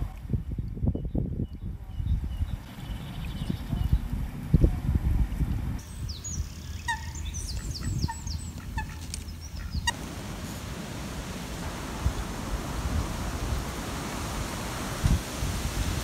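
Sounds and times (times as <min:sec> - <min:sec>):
songbird chirping: 0:00.9 - 0:04.1, 0:05.8 - 0:10.1
ducks calling softly: 0:06.4 - 0:10.0
outdoor hiss: 0:09.3 - 0:16.0.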